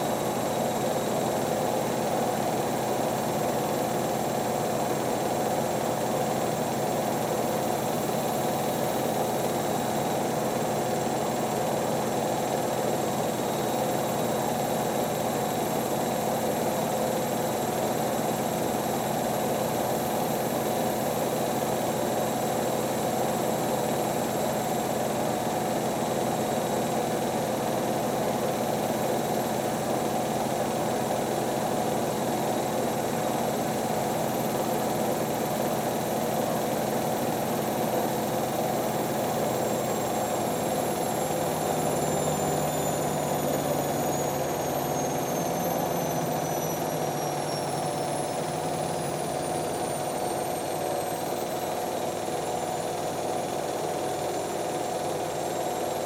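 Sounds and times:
high motor whines: 0:38.9 - 0:52.6.

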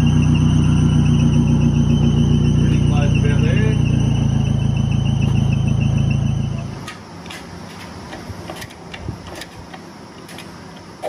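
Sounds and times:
machine humming: 0:00.0 - 0:06.9.

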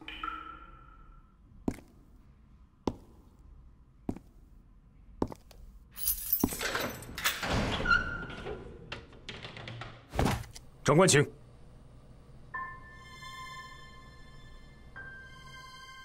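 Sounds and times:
footsteps on hard floor: 0:01.7 - 0:02.0, 0:02.9 - 0:03.4, 0:04.1 - 0:04.4
cell door rattling open: 0:06.5 - 0:10.5.

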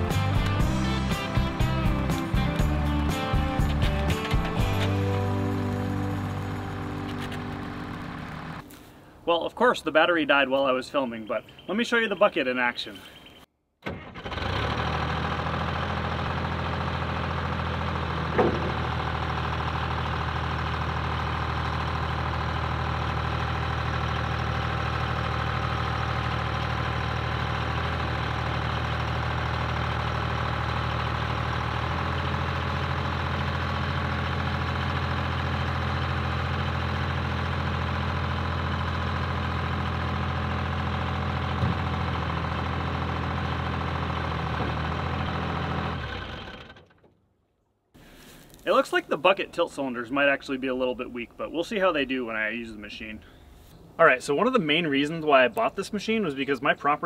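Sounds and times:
backhoe engine running: 0:00.0 - 0:08.8, 0:13.8 - 0:47.1.

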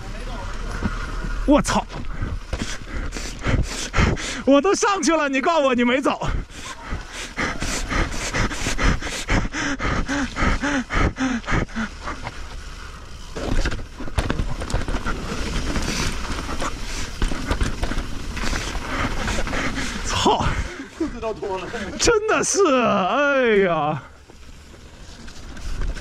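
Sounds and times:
bike clicks and rattles: 0:00.0 - 0:26.0
bike tyres rolling on dirt trail: 0:00.0 - 0:26.0
rider panting hard: 0:00.7 - 0:04.6, 0:06.2 - 0:23.0.

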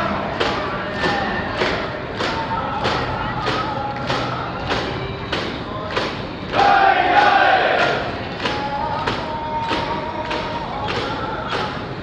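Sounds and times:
crowd chanting: 0:06.5 - 0:11.1.

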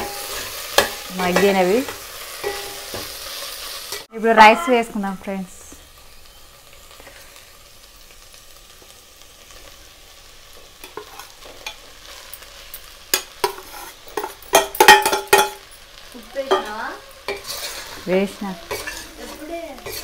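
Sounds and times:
vegetables sizzling: 0:00.0 - 0:20.0
spoon scraping steel pot: 0:13.2 - 0:15.6, 0:17.3 - 0:18.0, 0:18.6 - 0:20.0.

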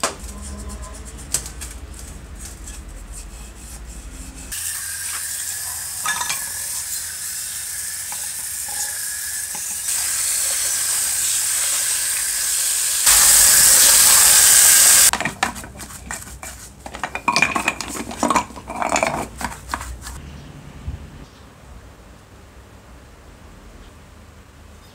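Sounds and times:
scrubbing and scraping by hand: 0:00.2 - 0:04.6, 0:15.1 - 0:20.2
water jet hissing: 0:04.5 - 0:15.2.

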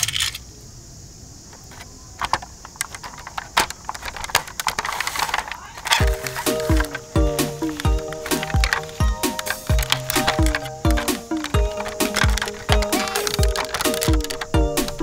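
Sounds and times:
plastic toy cars clicking: 0:00.0 - 0:00.5, 0:01.5 - 0:15.0
electronic tune with thumping beat: 0:06.0 - 0:15.0.

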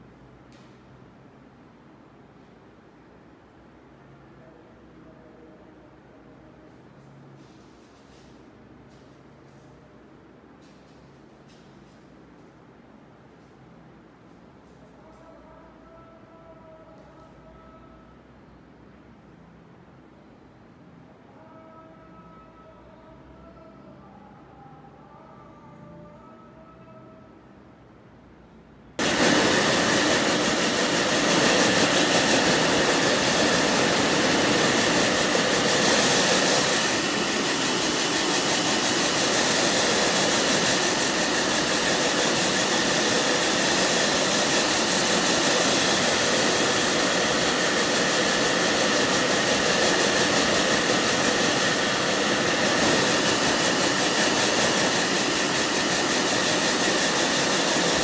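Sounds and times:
hair dryer running: 0:29.0 - 0:58.0.

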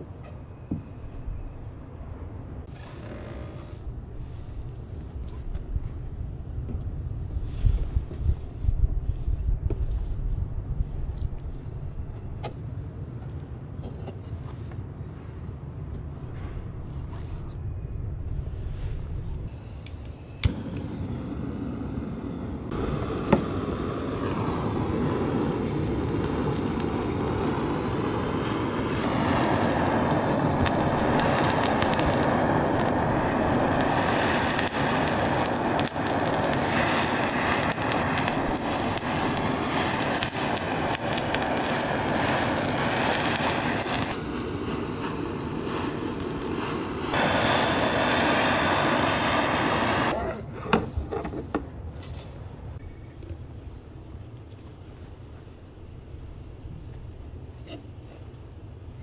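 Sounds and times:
gas torch flame hissing: 0:18.8 - 0:50.2.

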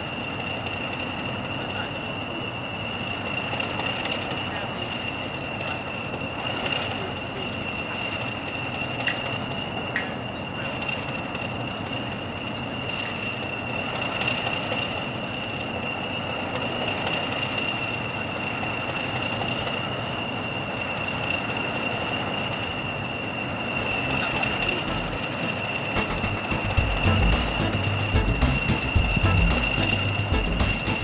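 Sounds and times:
diesel locomotive idling: 0:00.0 - 0:31.0
high-pitched turbocharger whistle: 0:20.3 - 0:31.0.

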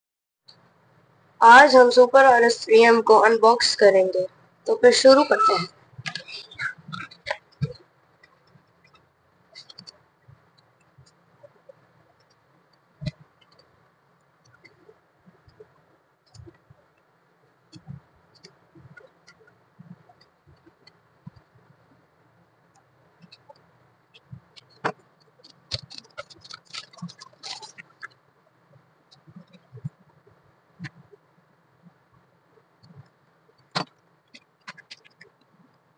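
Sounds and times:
plastic wrap crinkling: 0:25.6 - 0:28.1.

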